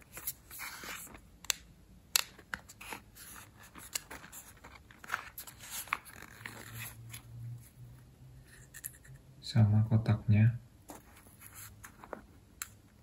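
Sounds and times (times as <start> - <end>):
cardboard rustling scrapes: 2.8 - 7.7.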